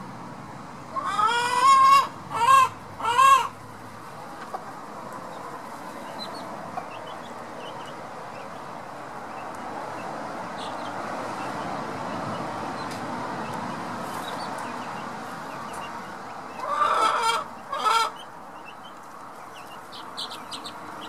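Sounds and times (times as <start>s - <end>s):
chicken calling: 0.9s - 3.6s, 14.0s - 21.0s.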